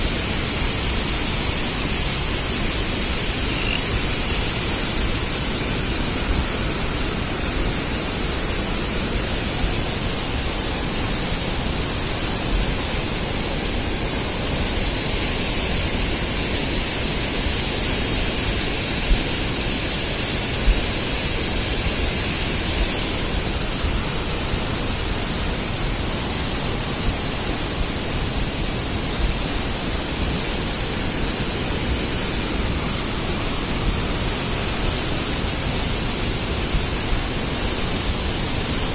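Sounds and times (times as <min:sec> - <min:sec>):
floodwater rushing in a stream: 0:00.0 - 0:38.9.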